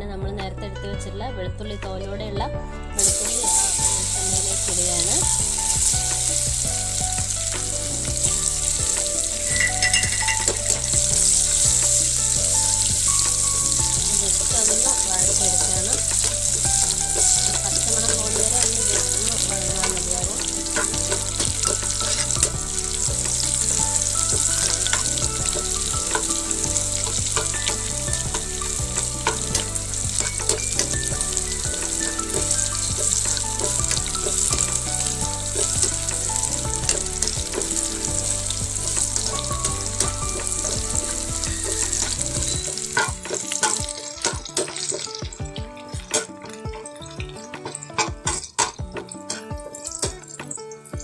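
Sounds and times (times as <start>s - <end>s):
garlic sizzling in oil: 3.0s - 51.0s
ladle clicking and scraping pan: 7.5s - 45.2s.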